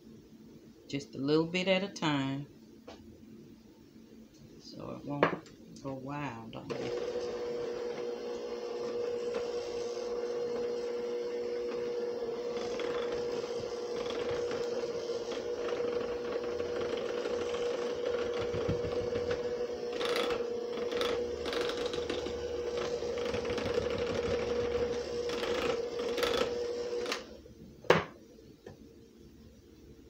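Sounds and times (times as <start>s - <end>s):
electric hand mixer running: 6.6s - 27.4s.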